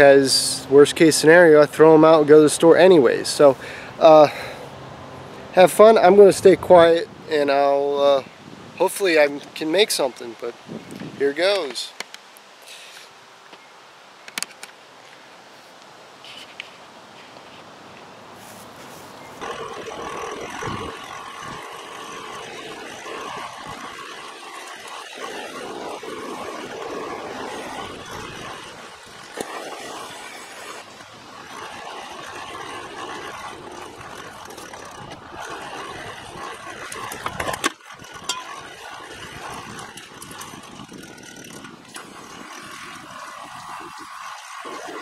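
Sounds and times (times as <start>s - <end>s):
hand-cranked blower whirring: 0.0s - 4.8s, 19.3s - 45.0s
torch hissing: 19.4s - 45.0s.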